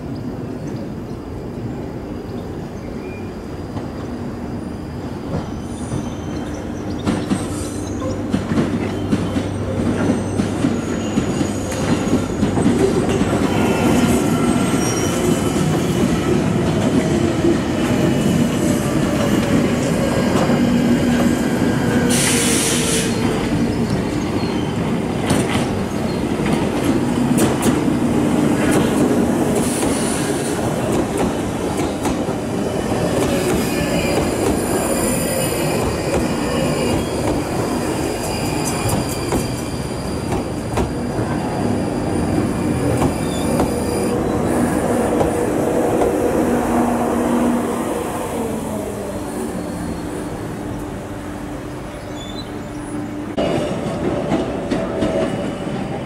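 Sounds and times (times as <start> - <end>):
train approaching platform: 0.0 - 56.0
train wheels clicking over joints: 25.1 - 46.5.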